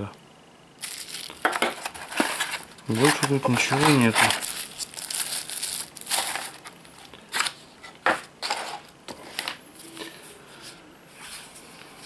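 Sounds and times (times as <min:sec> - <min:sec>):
cardboard boxes shuffled: 0:00.8 - 0:06.6
plastic bag crumpling: 0:00.8 - 0:07.6.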